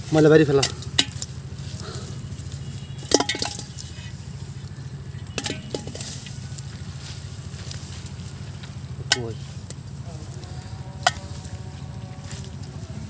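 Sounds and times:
rustling of dry leaves: 0.0 - 13.0
steady low hum: 0.0 - 13.0
clinks against aluminium pot: 0.5 - 1.4, 3.0 - 4.2, 5.2 - 6.3, 11.0 - 11.3.

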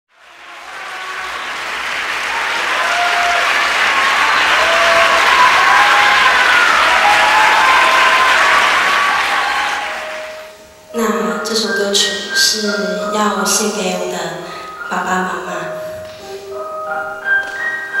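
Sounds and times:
audience applause: 0.1 - 10.6.

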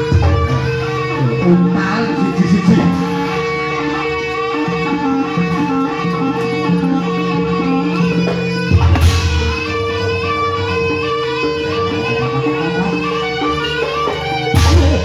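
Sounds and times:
drone under melody music: 0.0 - 15.0.

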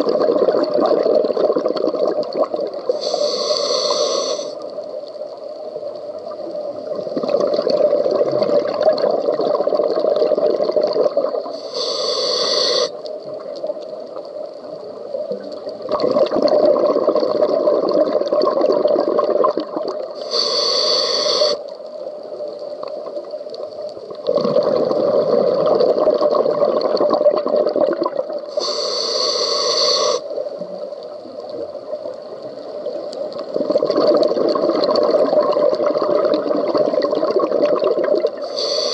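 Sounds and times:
bubbling exhaled air underwater: 0.0 - 4.6, 6.1 - 13.8, 15.1 - 21.6, 24.0 - 38.9
regulator inhalation hiss: 2.8 - 5.9, 11.4 - 13.1, 20.2 - 21.8, 28.4 - 30.4, 38.4 - 38.9.

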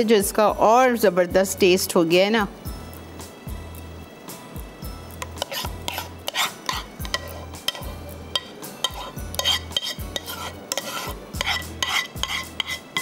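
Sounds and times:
spoon stirring and scraping bowl: 5.1 - 13.0.

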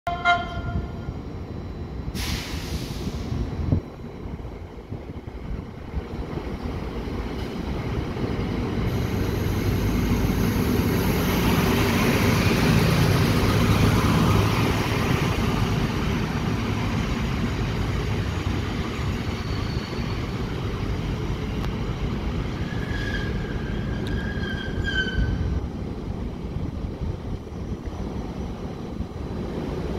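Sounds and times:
diesel railcar running: 0.1 - 29.9
high wheel squeal: 18.2 - 20.9, 22.4 - 25.5.

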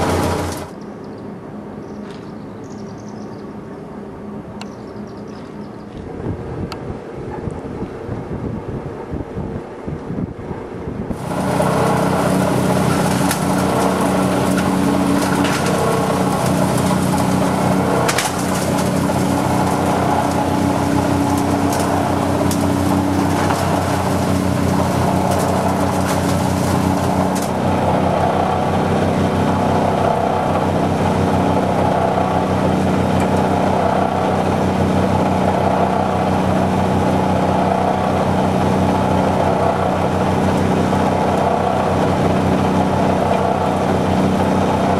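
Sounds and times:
hammer mill pulverizing clay: 0.0 - 0.7, 11.1 - 44.9
tractor engine running: 0.0 - 0.9, 11.1 - 44.9.

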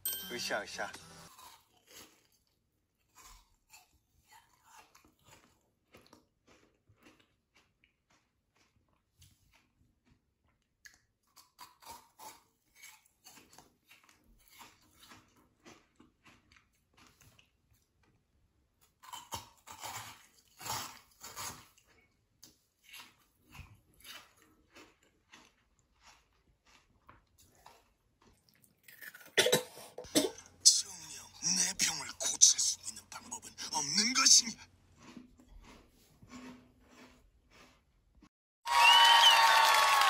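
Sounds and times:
chewing and crunching ice pop: 1.3 - 38.3
person coughing and spluttering: 29.3 - 34.6.

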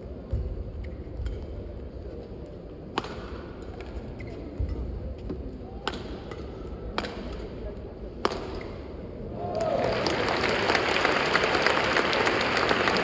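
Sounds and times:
racket hitting shuttlecock: 2.9 - 7.6, 8.2 - 8.9.

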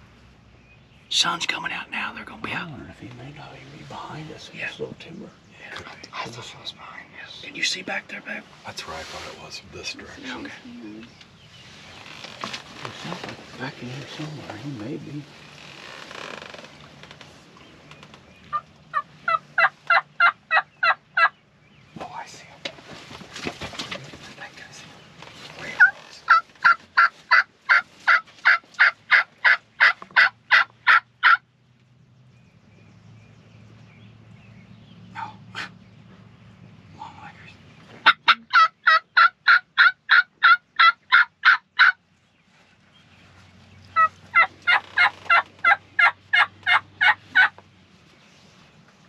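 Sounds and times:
turkey call yelping: 18.5 - 21.4, 25.8 - 31.4, 38.0 - 42.0, 44.0 - 47.6.

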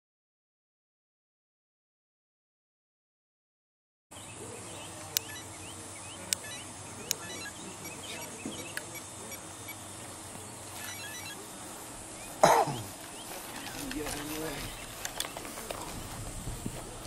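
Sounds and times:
faint high chirps: 4.1 - 13.8
steady background hiss: 4.2 - 17.0.

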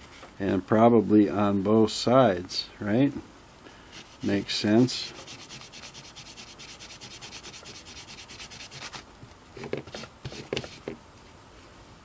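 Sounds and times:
carbon disc scrubbing on paper towel: 3.9 - 9.0.

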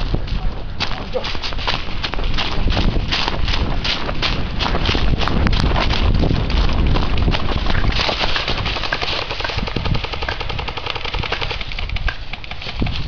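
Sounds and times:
microphone handling noise: 0.0 - 13.0
wind rumble on microphone: 0.0 - 13.0
airsoft rifle full-auto bursts: 7.9 - 13.0.

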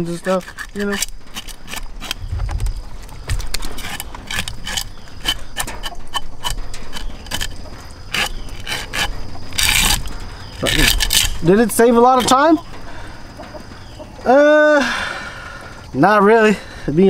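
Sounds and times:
metal scaler scraping fish scales: 0.2 - 12.5
knocks against wooden board: 2.2 - 4.4.

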